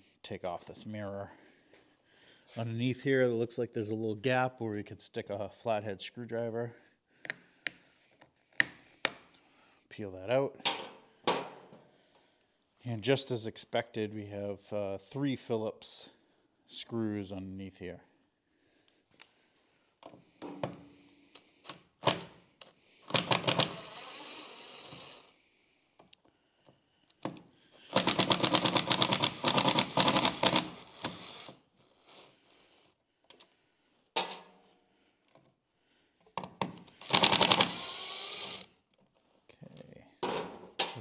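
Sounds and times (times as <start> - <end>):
power driver rattling: 37.0 - 38.6.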